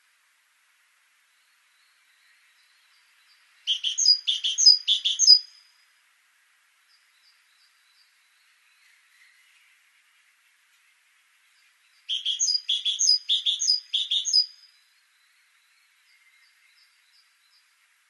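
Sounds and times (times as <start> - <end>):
great tit singing: 3.2 - 5.6, 12.0 - 14.7
faint short high bird calls: 3.7 - 5.8, 12.0 - 15.0.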